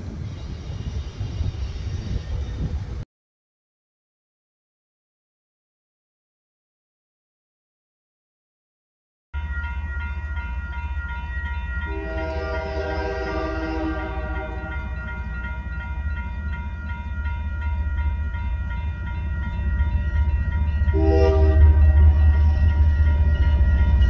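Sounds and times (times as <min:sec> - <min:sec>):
low train rumble: 0:00.0 - 0:03.0, 0:09.4 - 0:24.0
railroad crossing bell ringing: 0:09.4 - 0:24.0
train air horn: 0:11.9 - 0:15.0, 0:20.9 - 0:23.0.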